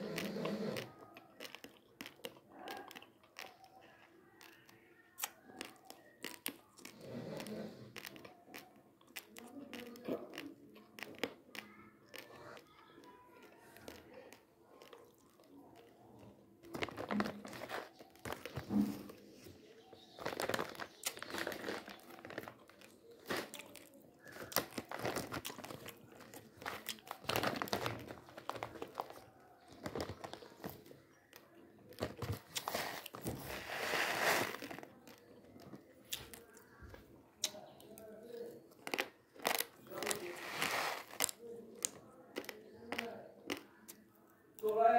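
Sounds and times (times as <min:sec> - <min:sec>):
plastic packets crinkling: 0:16.7 - 0:36.9, 0:38.2 - 0:43.6.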